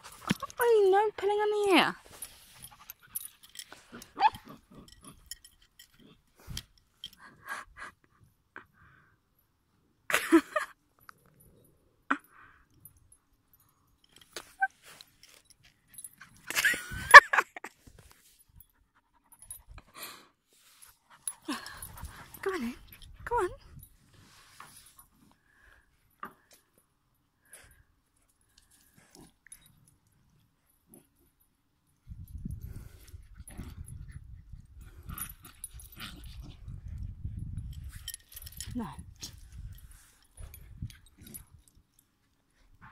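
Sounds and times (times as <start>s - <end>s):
dogs play-fighting: 20.8s - 24.2s, 32.2s - 38.6s, 39.2s - 42.9s.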